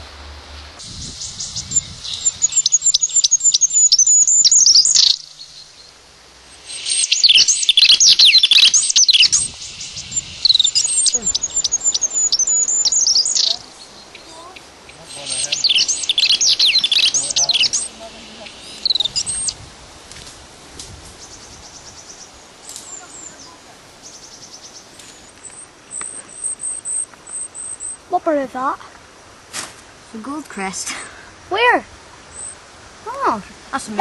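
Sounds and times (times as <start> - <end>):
bird song through small speaker: 1.2 - 5.7, 6.9 - 19.6.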